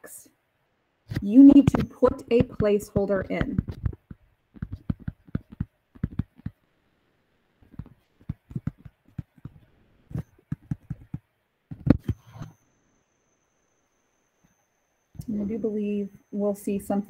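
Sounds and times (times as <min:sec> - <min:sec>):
stylus tapping on touchscreen: 0:01.1 - 0:06.6, 0:07.6 - 0:12.5.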